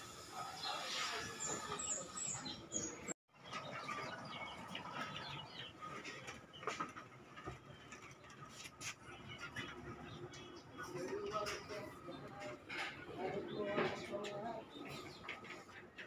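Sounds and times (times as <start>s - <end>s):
small birds chirping: 0.4s - 6.9s.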